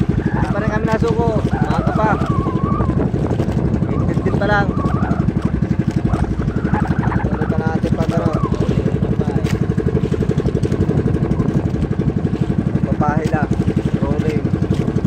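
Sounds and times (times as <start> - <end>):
boat engine chugging: 0.0 - 15.0
person talking: 0.3 - 2.6, 3.8 - 4.8.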